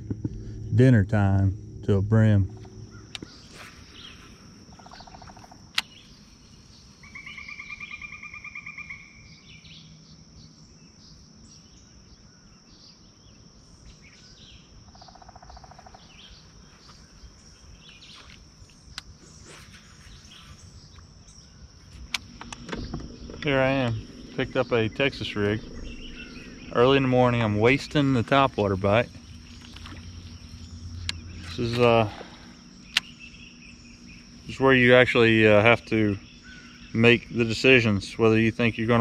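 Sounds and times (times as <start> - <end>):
high-pitched insect drone: 0.0 - 39.0
rapid trilling call: 2.5 - 9.3, 19.3 - 38.6
sharp click: 32.9 - 33.2.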